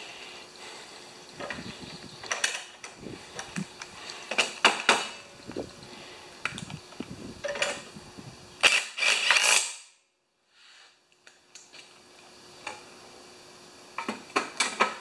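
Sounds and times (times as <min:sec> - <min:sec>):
cordless drill driving bolts: 0:08.6 - 0:09.7.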